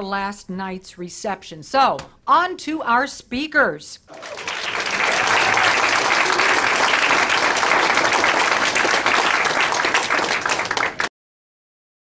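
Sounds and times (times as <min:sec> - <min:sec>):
audience applause: 0:04.1 - 0:11.1.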